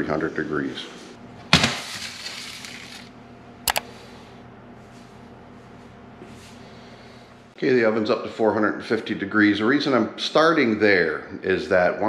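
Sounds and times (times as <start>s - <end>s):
foil rustle: 1.6s - 3.1s.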